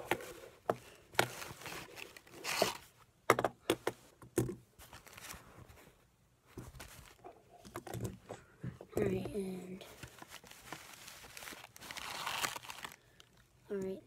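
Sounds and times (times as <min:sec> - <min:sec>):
cloth rustling: 0:00.0 - 0:03.0, 0:04.8 - 0:07.6, 0:09.4 - 0:13.4.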